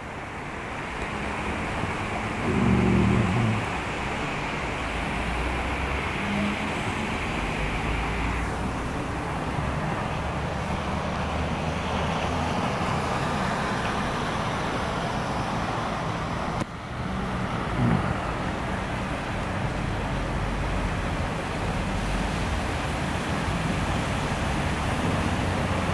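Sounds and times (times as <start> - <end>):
cars driving on wet street: 0.0 - 25.9
heavy rain: 0.0 - 25.9
sliding low tone: 2.4 - 3.7.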